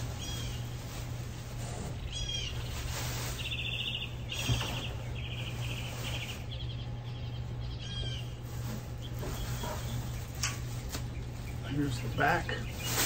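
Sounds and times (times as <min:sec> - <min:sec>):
steady low hum: 0:00.0 - 0:13.0
small bird trilling: 0:02.0 - 0:08.4.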